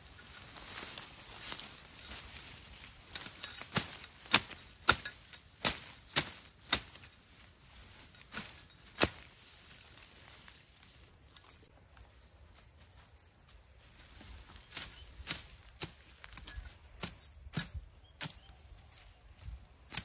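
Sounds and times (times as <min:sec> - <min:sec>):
hand tool chopping into ground: 0:03.1 - 0:07.2, 0:08.2 - 0:09.4.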